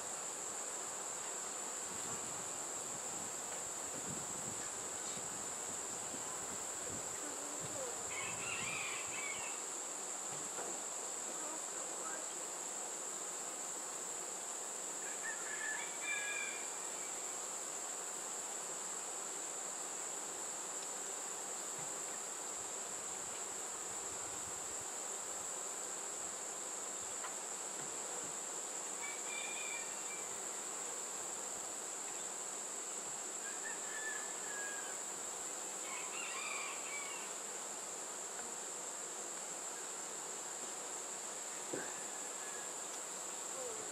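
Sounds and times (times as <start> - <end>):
high-pitched insect drone: 4.1 - 9.8, 29.0 - 30.6, 35.8 - 37.5.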